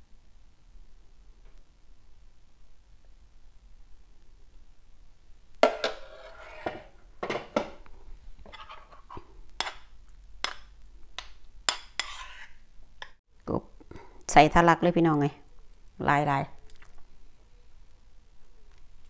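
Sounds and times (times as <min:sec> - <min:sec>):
pot and bowl knocking on counter: 0:05.6 - 0:06.0.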